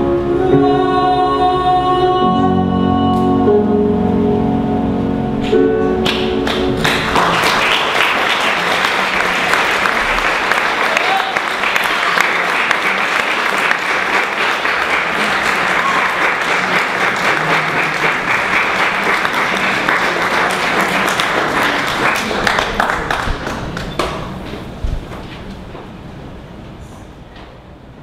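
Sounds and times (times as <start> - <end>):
audience applauding: 6.0 - 24.5.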